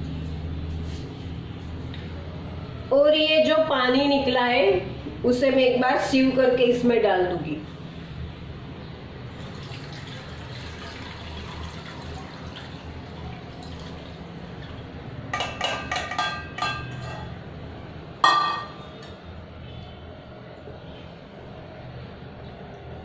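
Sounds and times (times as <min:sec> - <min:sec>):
liquid pouring through a strainer: 0:09.3 - 0:14.8.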